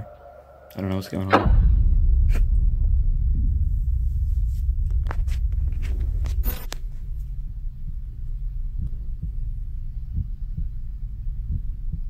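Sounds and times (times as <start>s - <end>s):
deep low rumble: 0.0s - 12.0s
sharp clicks and knocks: 1.2s - 2.4s, 4.8s - 7.4s.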